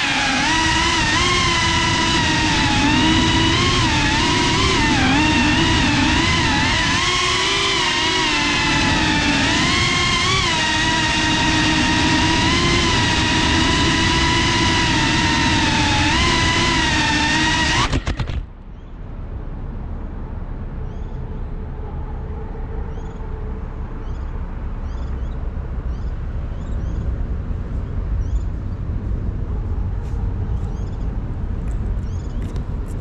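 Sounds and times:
drone motor whine: 0:00.0 - 0:18.9
low rumble of city traffic: 0:00.0 - 0:33.0.

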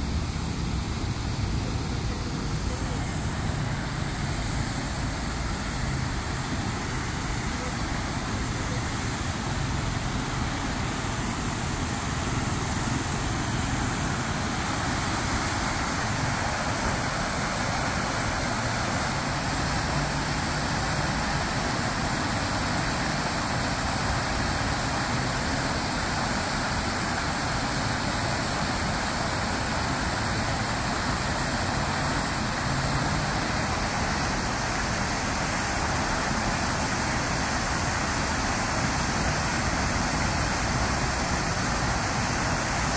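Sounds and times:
fountain water splashing: 0:00.0 - 0:42.9.

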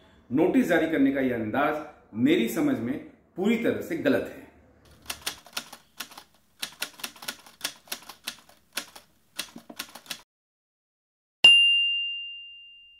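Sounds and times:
typewriter keys clacking: 0:04.9 - 0:10.2.

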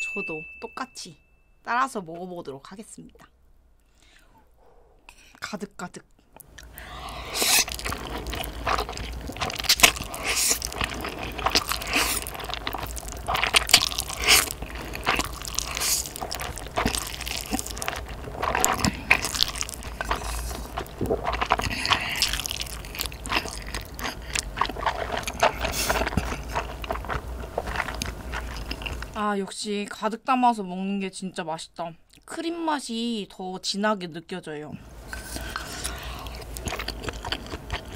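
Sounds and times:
slurping and chewing noodles: 0:06.4 - 0:29.2, 0:35.0 - 0:37.9.

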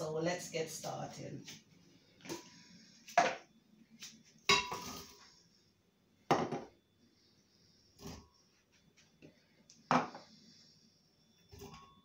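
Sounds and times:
dishes knocking and clinking: 0:04.5 - 0:04.9, 0:06.3 - 0:06.7, 0:09.9 - 0:10.2.

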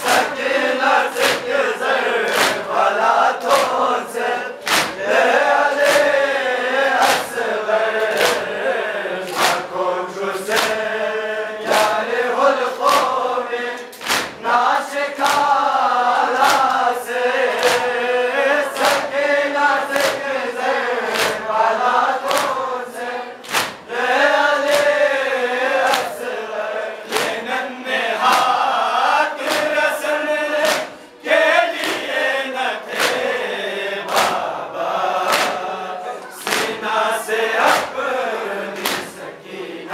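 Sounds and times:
hands slapping chests: 0:00.0 - 0:00.4, 0:01.0 - 0:04.0, 0:04.6 - 0:06.3, 0:06.9 - 0:07.4, 0:08.0 - 0:08.6, 0:09.2 - 0:09.7, 0:10.4 - 0:10.9, 0:11.6 - 0:16.9, 0:17.5 - 0:20.3, 0:21.0 - 0:22.7, 0:23.4 - 0:24.0, 0:24.6 - 0:26.4, 0:27.0 - 0:27.6, 0:28.2 - 0:29.9, 0:30.6 - 0:31.1, 0:31.7 - 0:32.2, 0:32.9 - 0:33.4, 0:34.1 - 0:34.5, 0:35.2 - 0:36.9, 0:37.6 - 0:38.0, 0:38.8 - 0:39.2
men chanting in unison: 0:00.0 - 0:39.9.

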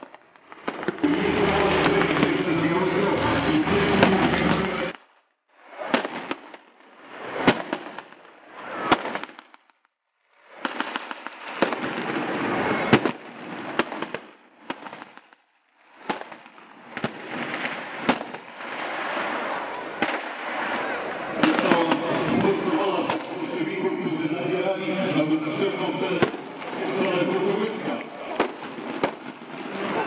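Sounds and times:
steady background noise: 0:00.8 - 0:04.9, 0:18.9 - 0:30.0
rifle shots cracking: 0:16.1 - 0:22.4.

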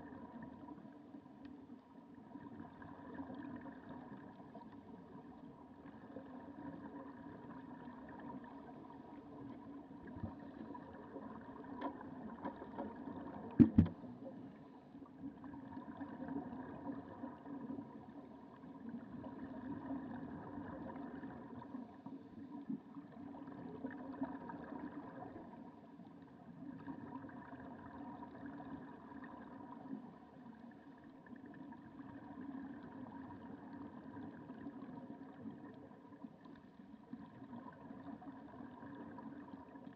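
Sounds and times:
muffled underwater rushing hum: 0:09.2 - 0:14.3
regulator bubbles: 0:10.0 - 0:14.0
sharp knock: 0:13.6 - 0:13.9.

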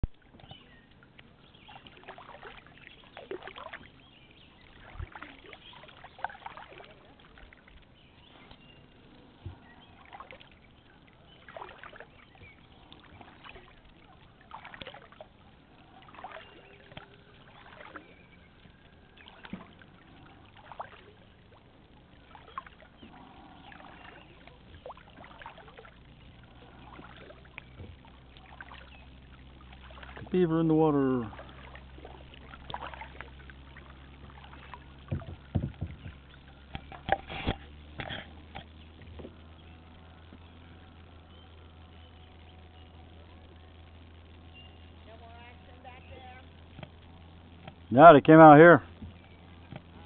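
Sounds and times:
water splashing and dripping: 0:00.0 - 0:41.1
low knock on kayak: 0:35.0 - 0:37.3.

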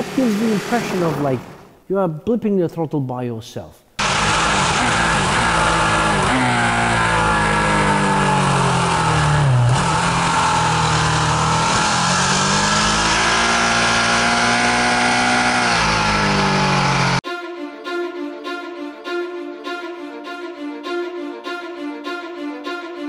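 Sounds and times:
motorcycle engine revving: 0:00.0 - 0:01.7, 0:04.0 - 0:17.2.

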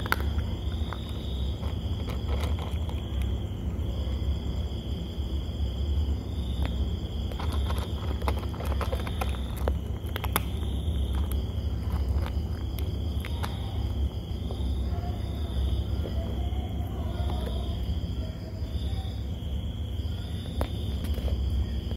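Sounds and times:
cat crunching dry kibble: 0:00.0 - 0:03.8, 0:06.0 - 0:18.1, 0:20.2 - 0:21.9
insects chirping: 0:00.0 - 0:21.9.

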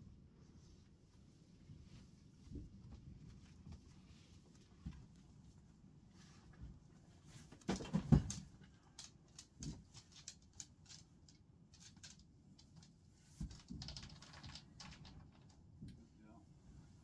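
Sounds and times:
dog claws clicking on floor: 0:08.1 - 0:15.5.

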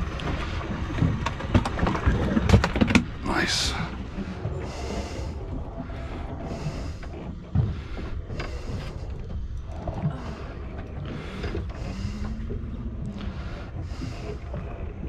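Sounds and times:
wind and water rumble: 0:00.0 - 0:15.0.

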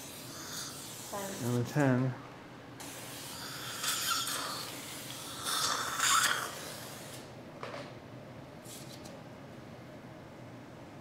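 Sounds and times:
dental suction slurping saliva: 0:02.8 - 0:07.3.

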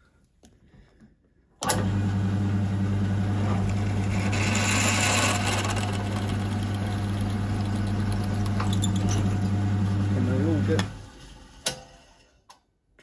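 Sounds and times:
drill motor humming: 0:01.9 - 0:11.0
drill bit cutting metal tube: 0:03.4 - 0:09.6.

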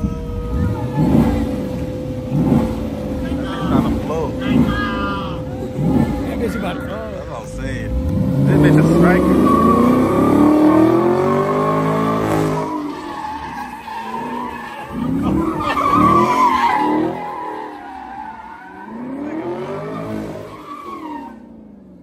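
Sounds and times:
tyres squealing on asphalt: 0:00.0 - 0:21.8
car engine revving: 0:00.0 - 0:22.0.

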